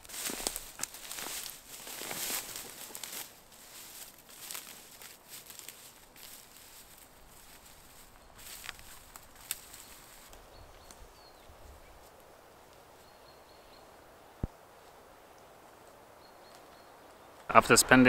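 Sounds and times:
footsteps on dry grass: 0.0s - 13.4s.

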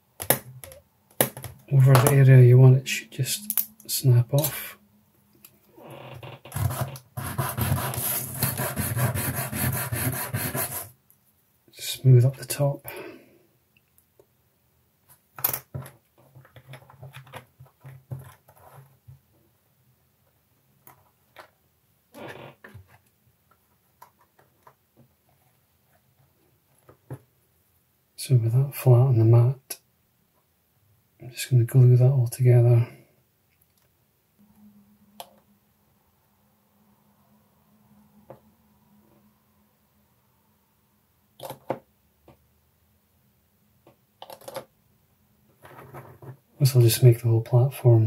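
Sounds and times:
plastic parts scraping on mat: 5.8s - 9.4s, 15.7s - 19.0s, 45.6s - 46.5s
plastic part scraping on sanding pad: 6.5s - 10.9s.

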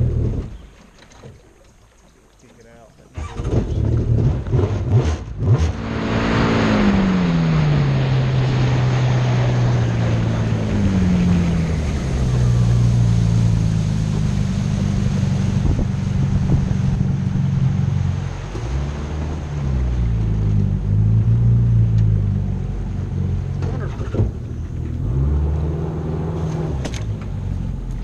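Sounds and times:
boat engine running: 0.0s - 28.0s
water rushing hiss: 5.8s - 20.4s.

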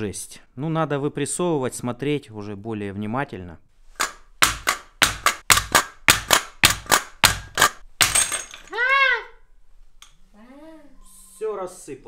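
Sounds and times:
sharp metal knocks: 4.0s - 8.7s.

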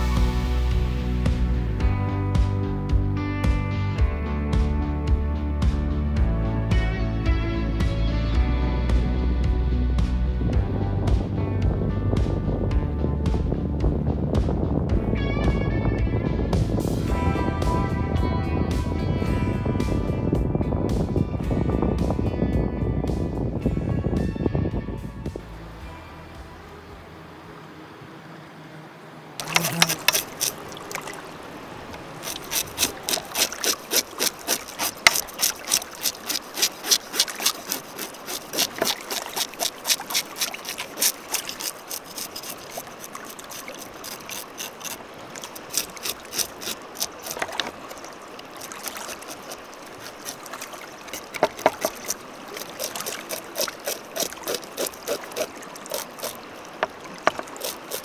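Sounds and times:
rhythmic water splashing: 0.0s - 23.8s, 29.4s - 58.0s
rushing water: 25.4s - 58.0s.

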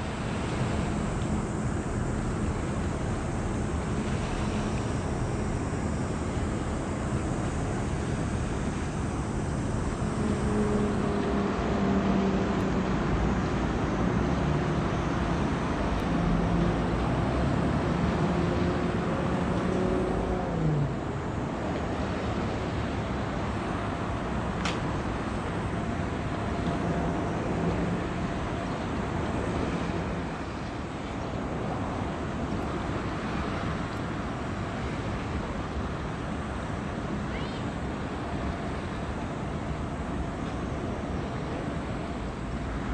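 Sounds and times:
low engine drone: 0.0s - 42.9s
moving water: 0.0s - 42.9s
wind: 0.0s - 42.9s.

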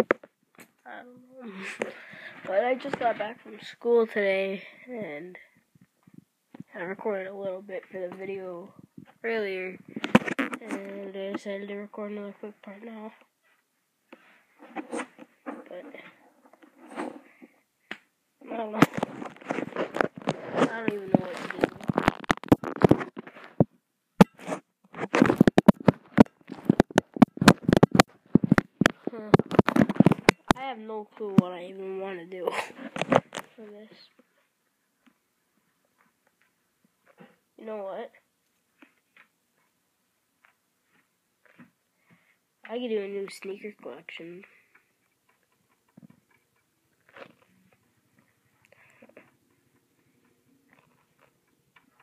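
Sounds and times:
handling or mouth noises: 9.9s - 10.8s, 18.8s - 30.6s, 47.0s - 47.8s.

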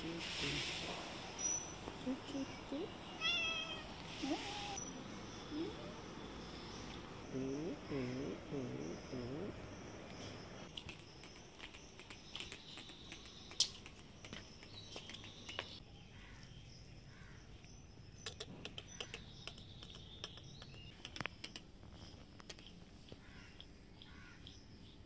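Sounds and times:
insect chorus: 0.0s - 25.0s.

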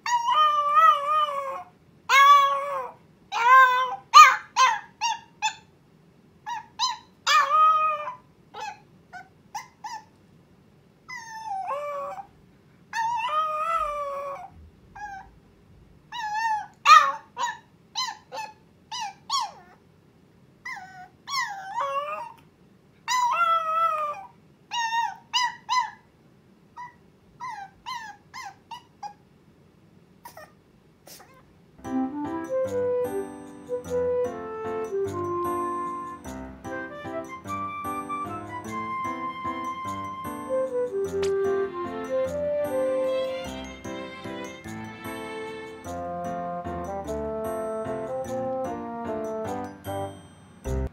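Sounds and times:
puppy howling: 0.0s - 5.6s, 6.5s - 8.8s, 11.1s - 12.3s, 13.0s - 15.3s, 20.7s - 22.4s, 23.1s - 26.0s
puppy yipping and whimpering: 0.0s - 5.7s, 6.4s - 10.2s, 11.1s - 12.3s, 12.9s - 15.4s, 16.1s - 19.8s, 20.6s - 22.4s, 23.0s - 26.1s, 26.8s - 29.2s, 30.2s - 31.4s, 37.2s - 41.4s.

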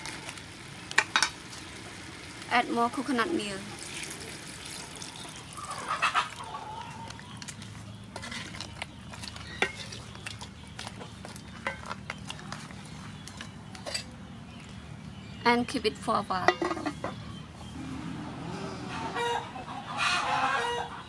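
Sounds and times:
milk pouring into a pot: 3.8s - 5.6s
wooden ladle stirring and knocking pot: 7.1s - 14.1s, 16.4s - 17.2s.

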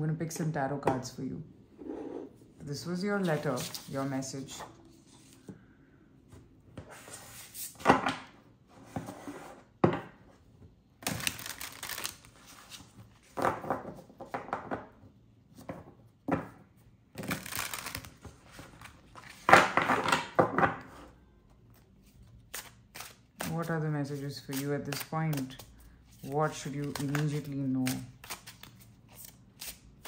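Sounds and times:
cards being shuffled: 3.2s - 4.1s, 11.0s - 13.4s, 17.2s - 19.5s, 22.0s - 30.0s.

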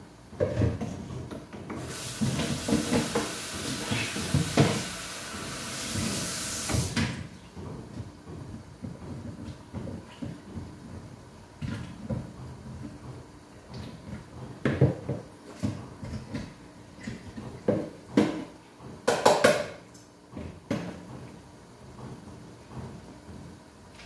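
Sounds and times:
dishes knocking and clattering: 17.1s - 19.8s.

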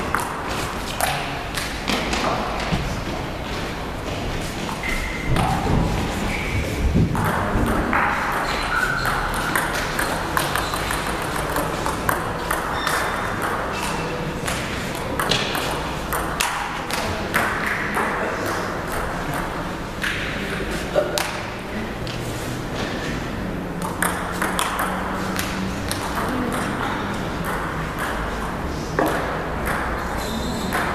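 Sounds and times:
table tennis ball clicking: 7.2s - 16.7s, 23.8s - 28.3s.

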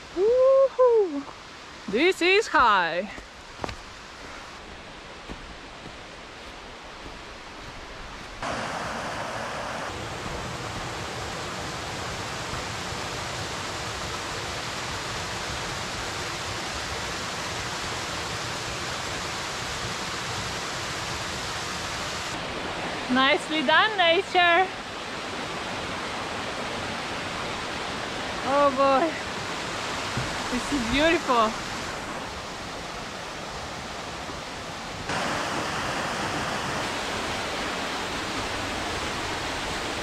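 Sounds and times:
waterfall rushing: 8.4s - 40.0s.

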